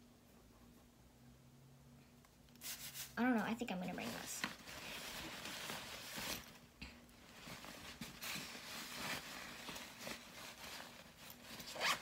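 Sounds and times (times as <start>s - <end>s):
cloth bag rustling: 4.0s - 12.0s.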